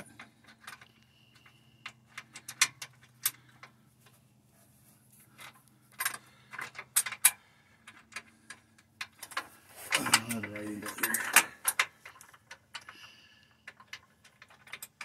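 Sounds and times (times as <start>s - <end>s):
metal bolt clinking: 8.1s - 12.9s.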